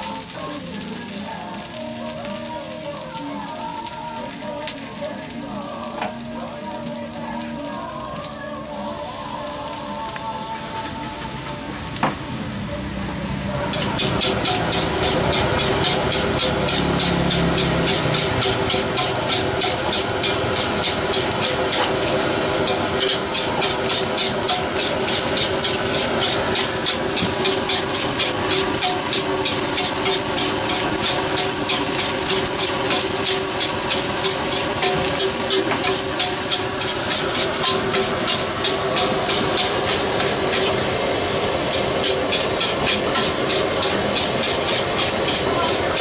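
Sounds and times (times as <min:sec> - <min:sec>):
rice sizzling: 0:00.0 - 0:46.0
metal spatula scraping wok: 0:13.7 - 0:46.0.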